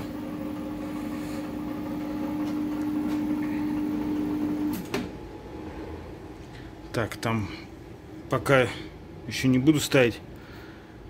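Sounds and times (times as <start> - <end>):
microwave oven humming: 0.0 - 5.5.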